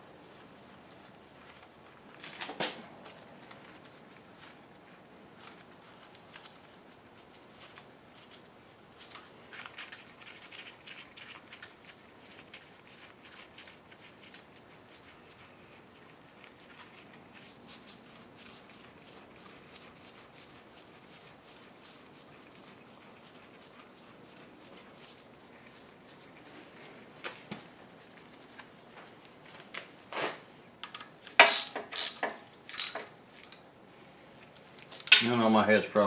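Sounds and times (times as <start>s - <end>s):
metallic clicks of hand tools: 30.8s - 33.6s.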